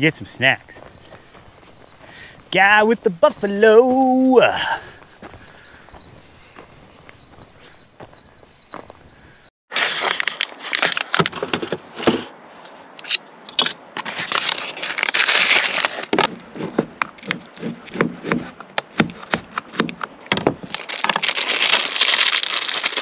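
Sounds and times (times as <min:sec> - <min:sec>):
wrapper being pulled open: 0:14.3 - 0:16.1, 0:20.7 - 0:23.0.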